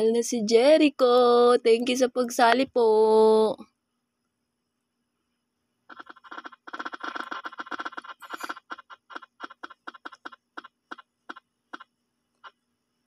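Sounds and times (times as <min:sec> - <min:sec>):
app wheel ticking on phone speaker: 0:05.9 - 0:12.6.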